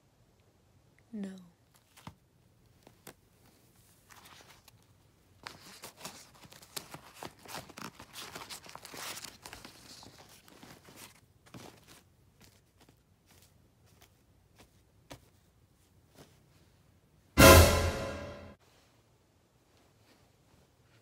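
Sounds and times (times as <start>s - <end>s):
rustling and crinkling: 1.6s - 17.0s.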